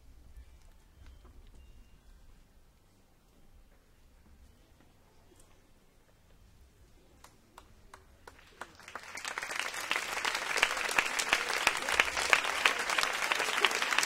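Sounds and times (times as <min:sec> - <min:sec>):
audience applause: 0:08.2 - 0:14.0.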